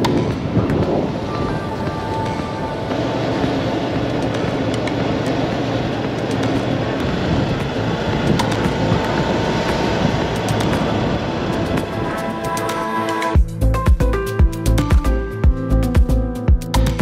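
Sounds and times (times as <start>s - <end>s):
motorcycle engine: 0.0s - 13.4s
wind rushing: 0.0s - 13.4s.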